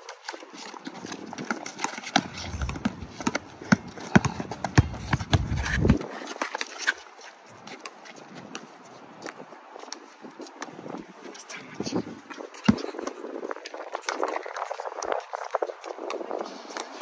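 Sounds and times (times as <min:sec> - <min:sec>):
sneakers slapping and scuffing: 0:00.0 - 0:11.4, 0:12.0 - 0:17.0
basketball bouncing on concrete: 0:01.4 - 0:06.1, 0:12.6 - 0:13.2.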